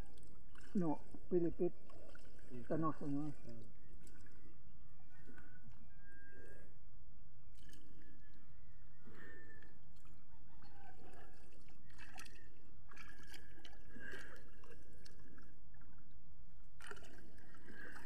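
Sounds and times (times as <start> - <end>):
river water running: 0.0 - 4.6, 9.9 - 18.0.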